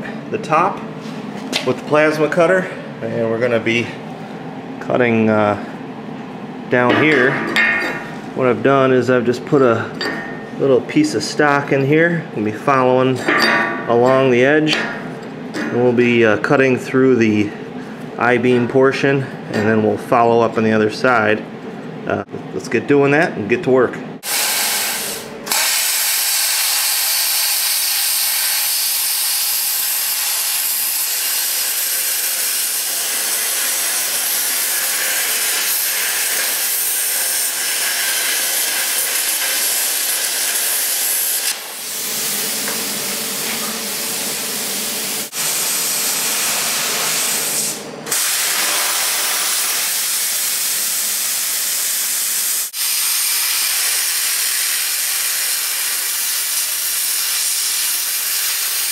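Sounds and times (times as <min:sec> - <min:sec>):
plasma cutter hissing: 0:24.2 - 0:58.9.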